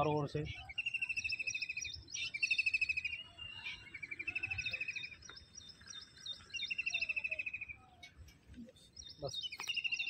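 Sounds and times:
bird chirps: 0.0s - 10.0s
bird trilling: 0.5s - 7.9s.

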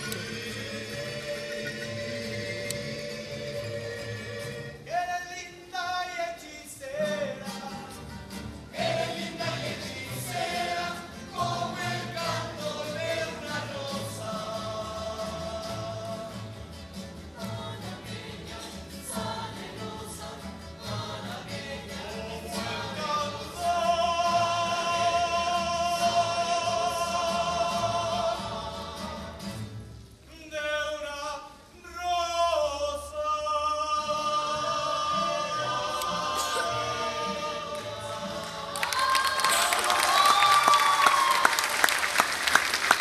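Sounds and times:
strummed guitars: 0.0s - 5.0s, 6.9s - 30.2s
man singing with vibrato: 0.0s - 40.0s
ensemble voices singing: 0.0s - 43.0s.

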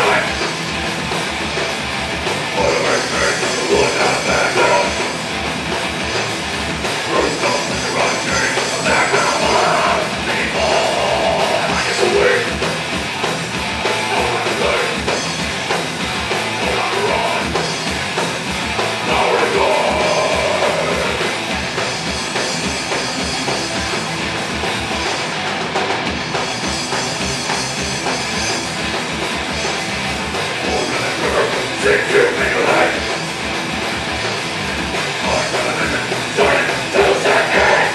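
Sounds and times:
vocals: 0.0s - 0.6s, 2.4s - 5.3s, 6.9s - 12.9s, 13.8s - 15.4s, 16.5s - 17.9s, 18.9s - 21.4s, 30.5s - 33.3s, 35.1s - 37.9s
heavy metal band playing: 0.0s - 37.9s.

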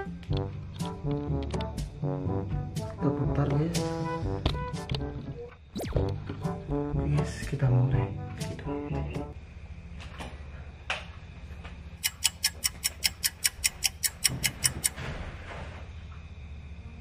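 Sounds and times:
rapid clock-like ticking: 12.0s - 15.0s.

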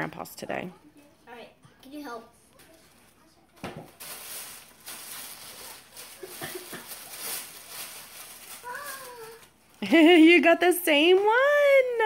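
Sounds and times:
tissue paper rustling: 3.8s - 10.0s.

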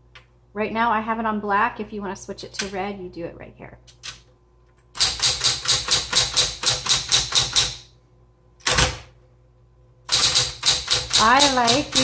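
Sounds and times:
faint motor hum: 0.0s - 12.0s
typewriter key strikes: 5.0s - 7.8s, 10.1s - 12.0s.

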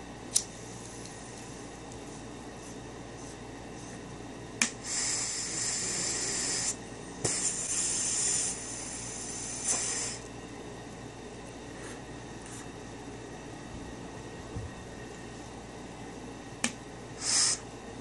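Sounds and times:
high hiss: 4.6s - 10.3s, 17.2s - 17.6s.

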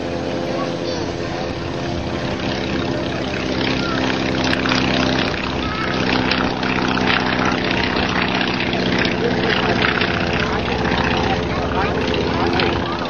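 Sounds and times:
biplane engine droning: 0.0s - 13.0s.

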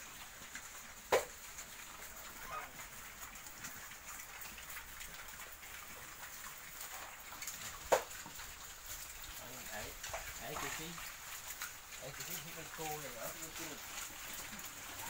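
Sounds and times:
animal chewing and crunching: 0.0s - 15.0s
leaves rustling: 6.5s - 15.0s.

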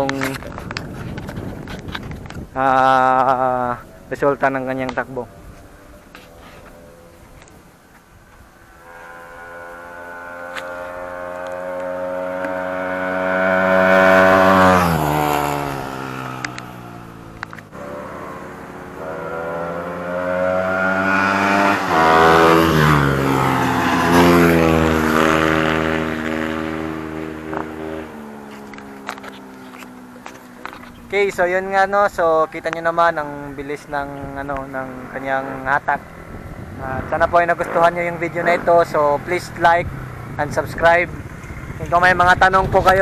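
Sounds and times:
motorcycle accelerating past: 8.4s - 31.6s, 33.5s - 43.0s.

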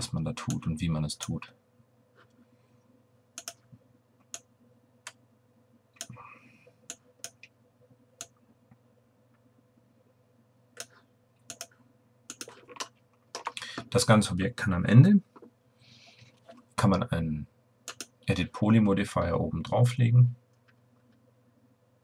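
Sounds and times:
computer mouse clicks: 3.4s - 5.2s, 6.9s - 7.6s, 10.8s - 13.6s, 17.9s - 18.2s.

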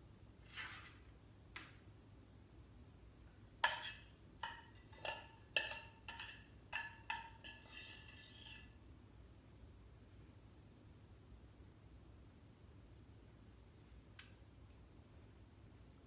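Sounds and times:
utensil scraping metal saucepan: 3.6s - 8.8s.

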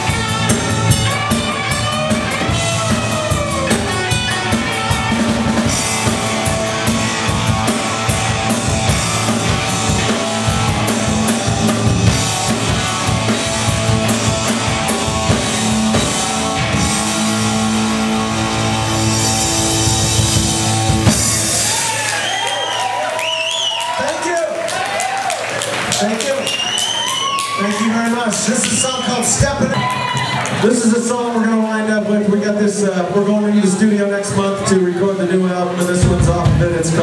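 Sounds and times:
bass guitar: 0.0s - 22.4s, 35.8s - 37.0s
electric guitars: 0.0s - 23.5s
drum kit: 0.0s - 23.6s, 25.0s - 31.3s, 35.8s - 37.0s.

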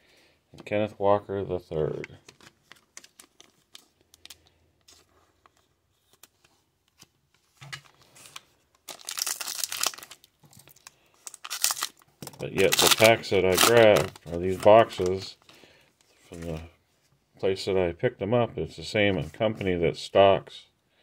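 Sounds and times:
card handling: 2.0s - 16.7s
card pack wrapper crinkling and tearing: 2.2s - 15.5s.

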